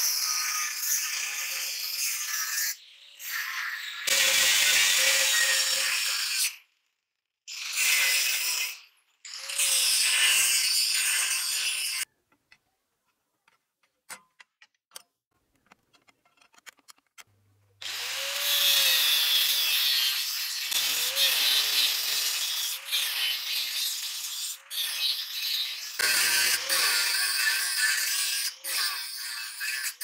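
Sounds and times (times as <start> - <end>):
angle grinder cutting steel: 0.0 - 6.6, 7.5 - 12.1, 17.8 - 30.0.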